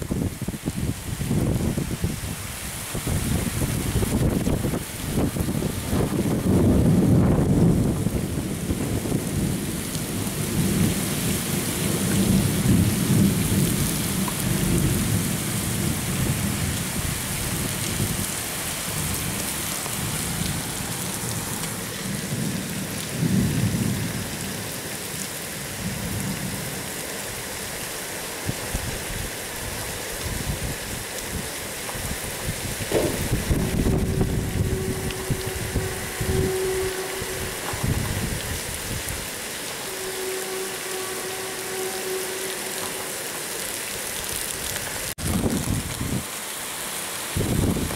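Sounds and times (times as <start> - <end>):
gusty wind buffeting microphone: 0.0 - 18.4, 28.4 - 39.4, 45.1 - 46.3, 47.3 - 47.9.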